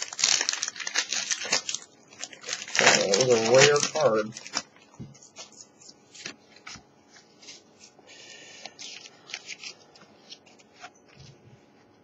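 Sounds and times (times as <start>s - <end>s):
foil pack crinkling: 0.0s - 6.8s, 8.5s - 11.2s
wrapper rustling: 0.0s - 7.7s, 8.6s - 11.3s.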